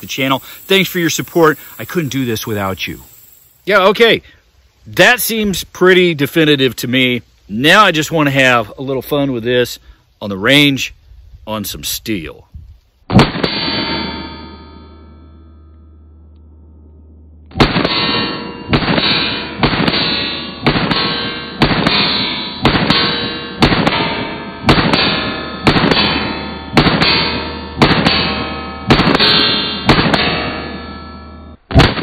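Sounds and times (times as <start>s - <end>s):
pistol shots: 13.1s - 13.8s, 17.5s - 30.5s, 31.7s - 32.0s
steel targets ringing: 13.2s - 16.2s, 17.6s - 32.0s.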